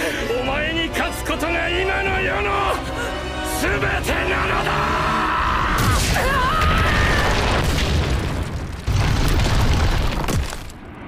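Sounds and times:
crashing rock debris: 5.8 - 10.8.

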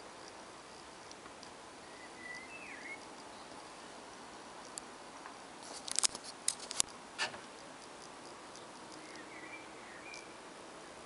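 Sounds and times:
steady hiss: 0.0 - 11.0
sharp clicks and ticks: 0.2 - 1.6, 4.1 - 4.9, 5.7 - 9.3
whistled chirp: 1.8 - 3.0, 9.0 - 10.4.

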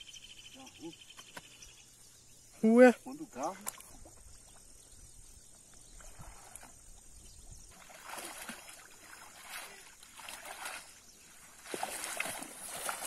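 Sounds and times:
water splashes: 3.2 - 4.5, 5.9 - 13.0
water sloshing and dripping: 3.4 - 4.7, 5.7 - 13.0.

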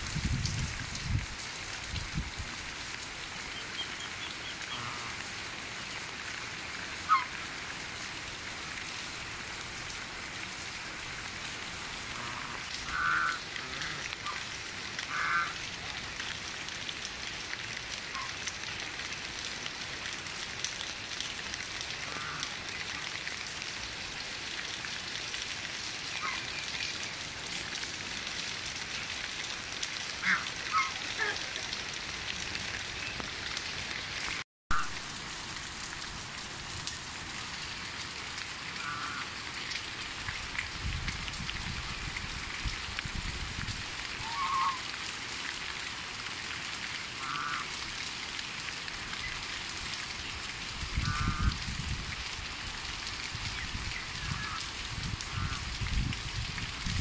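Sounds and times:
steady rain hiss: 0.0 - 57.0
geese honking: 30.2 - 31.4.

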